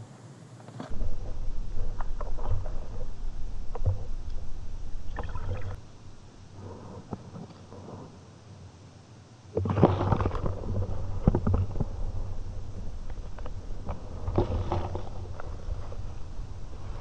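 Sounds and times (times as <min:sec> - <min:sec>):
muffled underwater rumble: 0:00.9 - 0:17.0.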